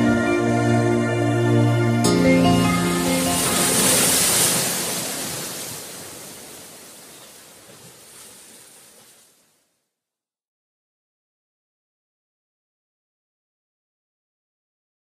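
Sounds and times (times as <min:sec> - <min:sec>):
background music: 0:00.0 - 0:05.2
rushing surf-like noise: 0:02.1 - 0:08.8.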